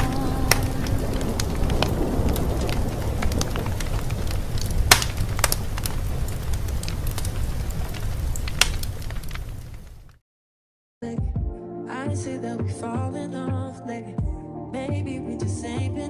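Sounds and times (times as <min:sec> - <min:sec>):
fire crackling with pops: 0:00.0 - 0:10.2.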